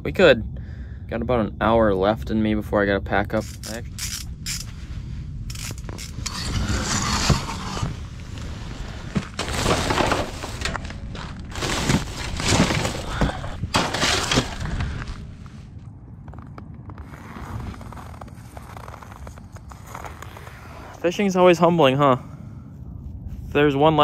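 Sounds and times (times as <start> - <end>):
rustling and scraping of gear: 3.4 - 21.2.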